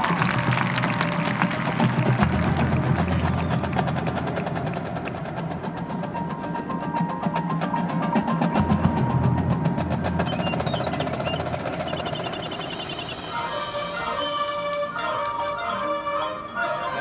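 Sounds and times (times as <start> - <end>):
marching band playing: 0.0 - 17.0
rapid drum strokes: 1.7 - 14.0.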